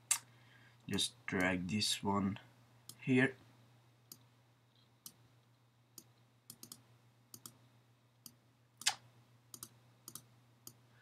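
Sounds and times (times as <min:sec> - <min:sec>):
faint steady hum: 0:00.0 - 0:11.0
computer mouse clicking: 0:06.0 - 0:07.6, 0:08.2 - 0:10.8.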